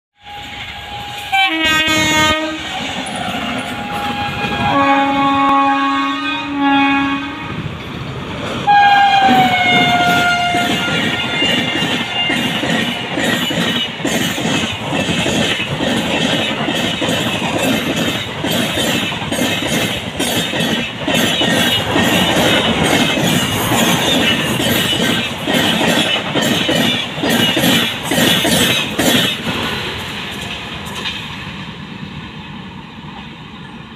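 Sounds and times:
train horn blasts: 0.2 - 3.0, 3.6 - 7.6, 8.7 - 12.6
train wheels clattering over rail joints: 7.7 - 31.6.

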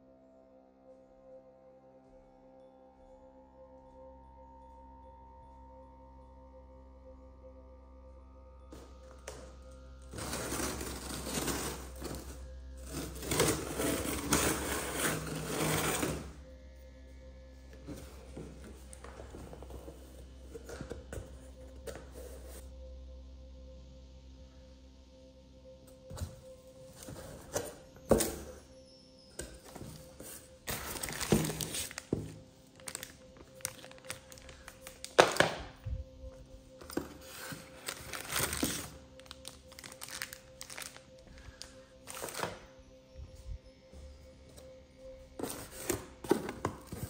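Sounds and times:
plastic bag rustling: 30.6 - 35.6, 36.8 - 42.6.

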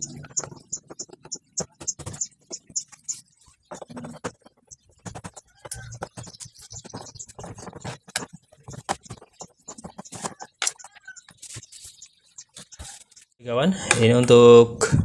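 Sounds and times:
hands clicking and knocking on panel: 3.7 - 11.4.

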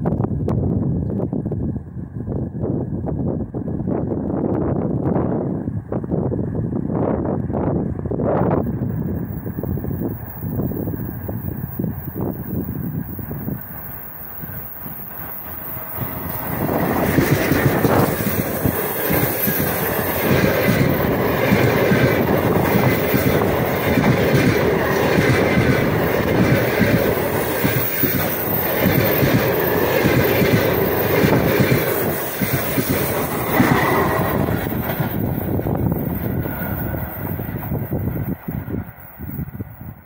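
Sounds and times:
train rolling rumble: 0.0 - 40.0.

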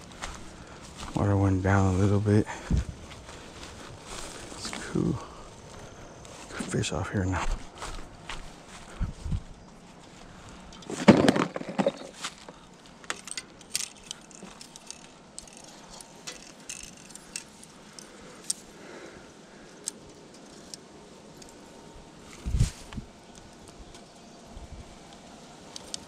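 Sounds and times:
fishing gear clicks and clinks: 10.7 - 18.7.

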